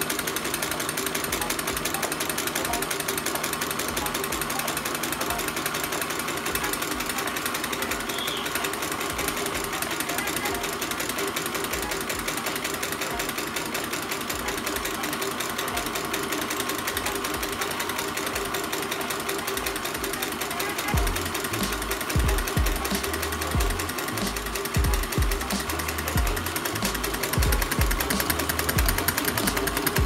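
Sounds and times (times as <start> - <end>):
small engine rattling: 0.0 - 30.0.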